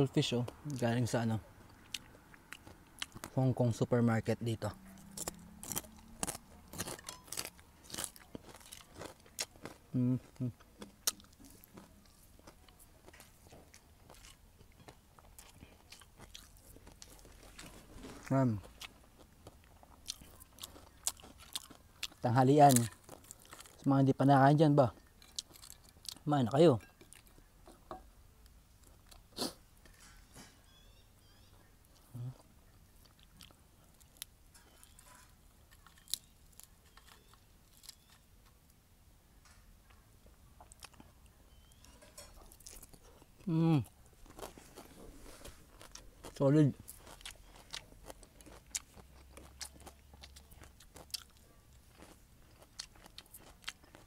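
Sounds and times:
crunching of chewing crispy fish: 0:01.7 - 0:03.4, 0:04.5 - 0:27.5, 0:32.0 - 0:38.7, 0:40.6 - 0:54.0
crispy fried fish crackling: 0:05.0 - 0:09.8.

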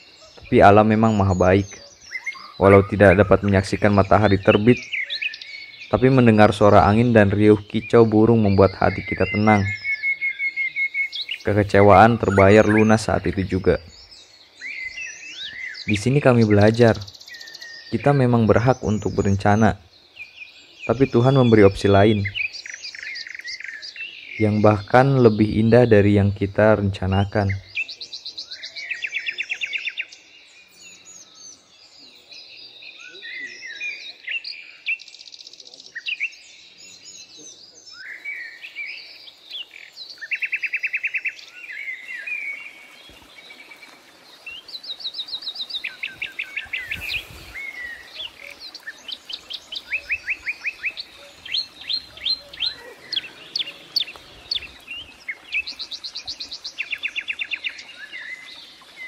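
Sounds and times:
bird trills: 0:00.0 - 0:18.8, 0:32.9 - 0:59.0
birds singing in chorus: 0:00.0 - 0:59.0
high chirps and whistles: 0:08.6 - 0:13.2, 0:43.8 - 0:58.6.

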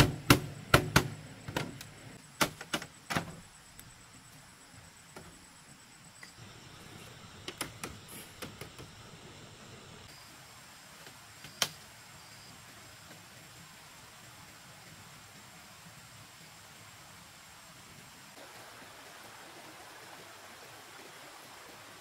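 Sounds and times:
bamboo slats knocking: 0:00.0 - 0:01.8.

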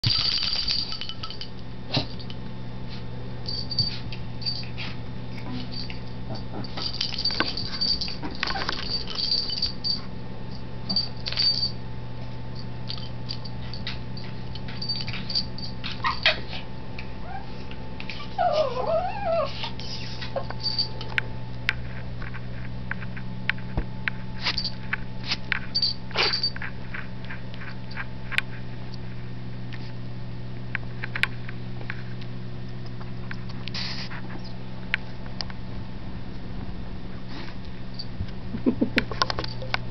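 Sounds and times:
low hum: 0:00.0 - 0:39.9
dogs scuffling and scratching: 0:02.9 - 0:10.0, 0:10.9 - 0:16.7
dog whining: 0:15.8 - 0:20.9.

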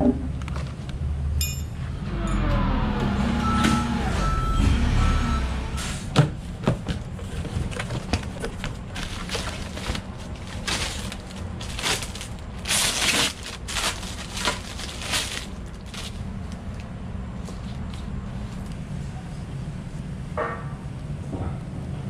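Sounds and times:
low rumble of shop background: 0:00.0 - 0:22.0
plastic bag crinkling: 0:07.2 - 0:16.6.

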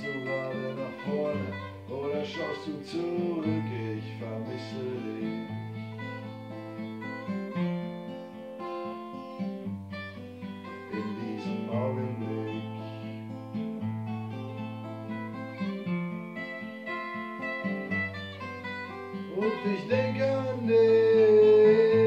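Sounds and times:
acoustic guitars playing chords: 0:00.0 - 0:22.0.

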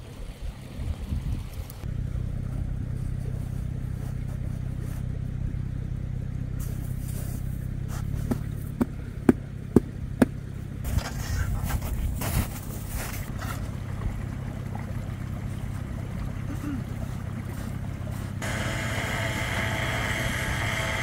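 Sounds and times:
car engine idling: 0:01.8 - 0:21.0
scuffling noise: 0:10.9 - 0:13.6.

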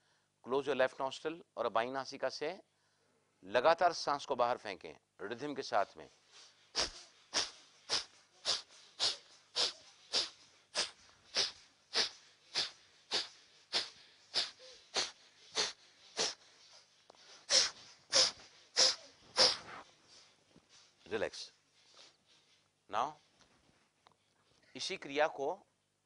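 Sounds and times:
sharp nasal exhalations: 0:06.1 - 0:21.0.

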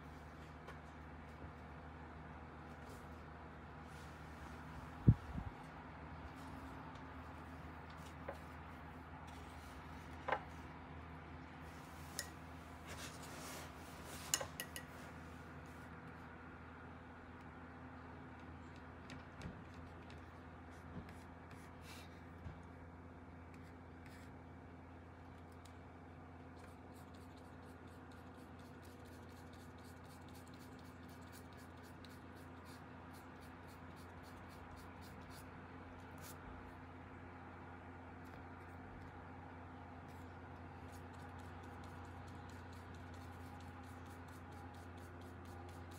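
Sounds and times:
steady low hum: 0:00.0 - 0:45.9
soft rustle: 0:11.6 - 0:15.9
paintbrush scratching paper: 0:23.6 - 0:24.3, 0:26.6 - 0:35.5, 0:36.1 - 0:36.4, 0:40.0 - 0:45.9.

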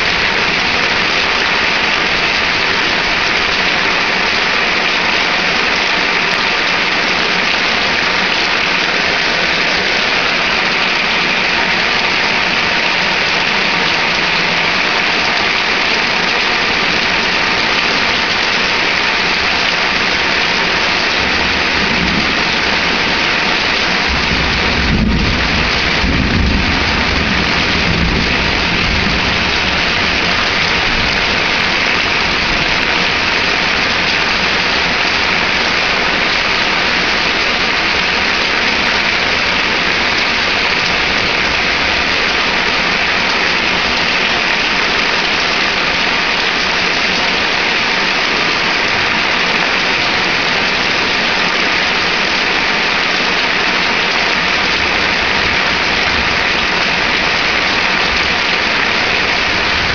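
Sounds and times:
heavy rain pouring: 0:00.0 - 0:59.9
thunder rumble: 0:21.2 - 0:36.0.

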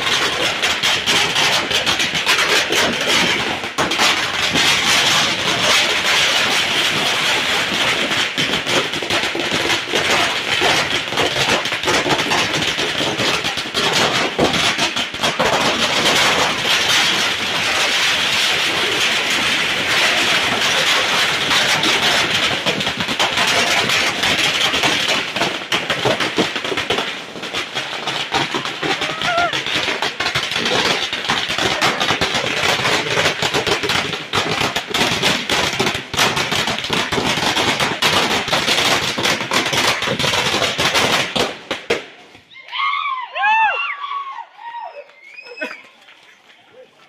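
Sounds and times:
firecracker string crackling: 0:00.0 - 0:43.8.

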